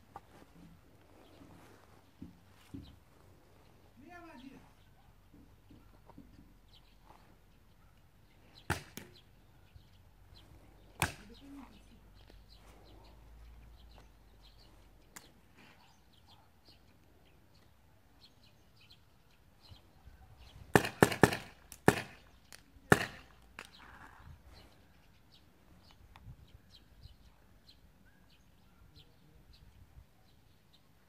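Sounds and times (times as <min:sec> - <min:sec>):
birds chirping: 0:00.0 - 0:31.0
paintball markers firing: 0:08.7 - 0:09.2, 0:11.0 - 0:11.3, 0:20.7 - 0:23.8.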